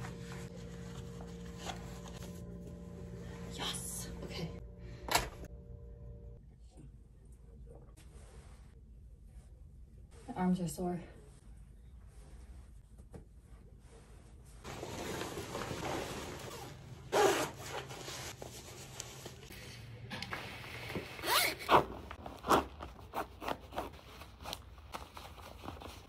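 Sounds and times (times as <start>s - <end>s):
fabric rustling: 0.0s - 3.4s, 13.6s - 19.5s
zipper zipping: 16.4s - 17.8s, 21.2s - 23.6s.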